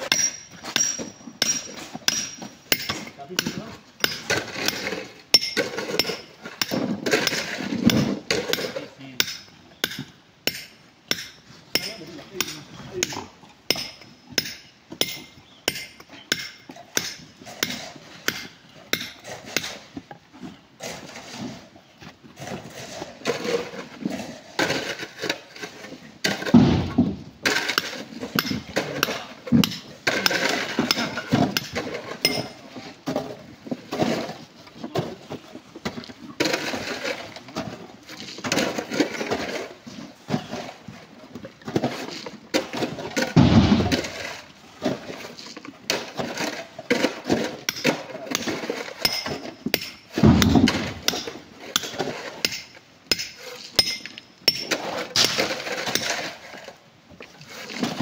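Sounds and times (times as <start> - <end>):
hammer striking rock: 0.0 - 4.8, 5.4 - 19.8, 26.3 - 32.5, 47.7 - 56.1
rock knocking and clattering: 22.1 - 58.0.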